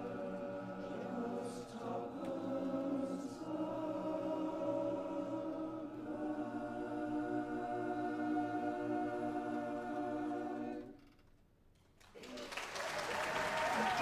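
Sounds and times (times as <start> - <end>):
a cappella chorus singing: 0.0 - 11.0.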